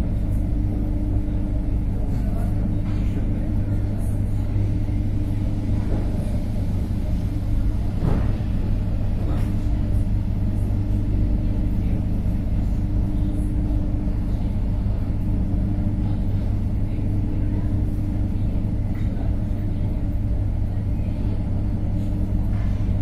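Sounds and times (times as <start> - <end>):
electric train rumbling: 3.8 - 13.1.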